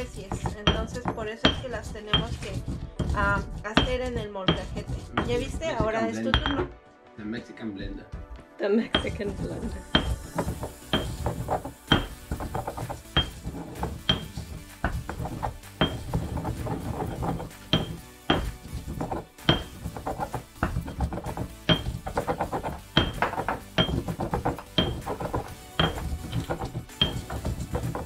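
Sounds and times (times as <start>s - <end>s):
stone pestle grinding spices: 0.0s - 6.5s, 9.0s - 28.0s
stone knocking on stone: 0.0s - 6.8s, 8.9s - 28.0s.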